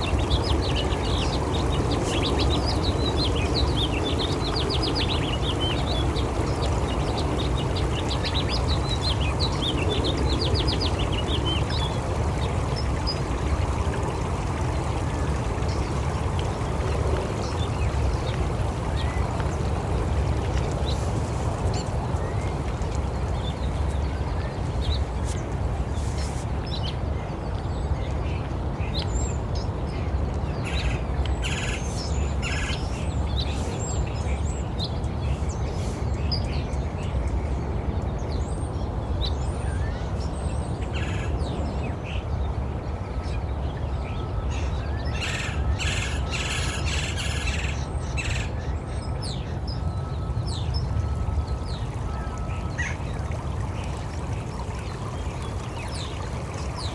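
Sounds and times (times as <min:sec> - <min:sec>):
birds chirping and calling: 0:44.6 - 0:49.8.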